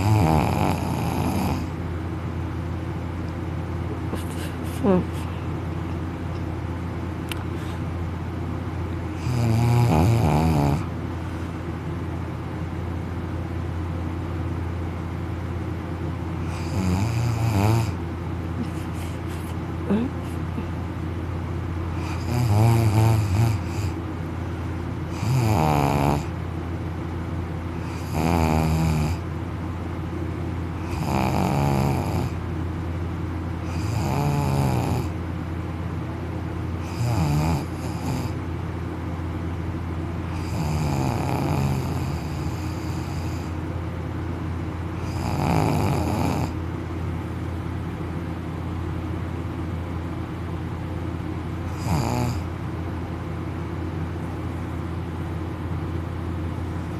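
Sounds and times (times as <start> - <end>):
man snoring: 0.0 - 1.7, 9.2 - 10.9, 16.4 - 18.0, 22.0 - 24.0, 25.1 - 26.3, 27.8 - 29.2, 30.8 - 32.4, 33.6 - 35.2, 36.8 - 38.4, 40.3 - 43.6, 45.0 - 46.6, 51.7 - 52.5.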